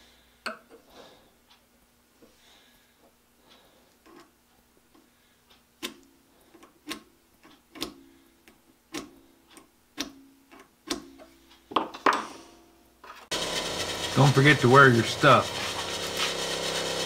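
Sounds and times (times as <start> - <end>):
long metal scrapes: 13.3 - 17.0.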